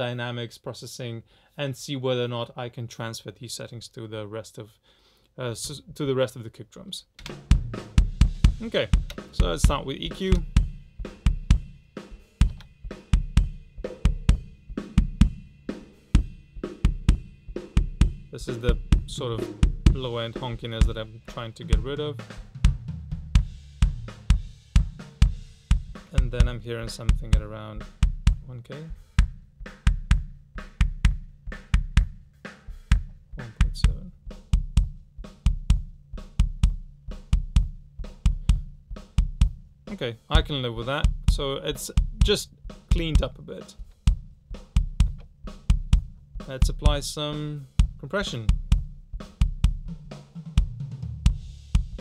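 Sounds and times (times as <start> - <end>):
punchy kick drum hits: 7.2 - 11.8, 12.4 - 28.5, 29.1 - 32.2, 32.9 - 39.7, 44.1 - 47.1, 47.8 - 52.0
snare drum: 7.2 - 52.0.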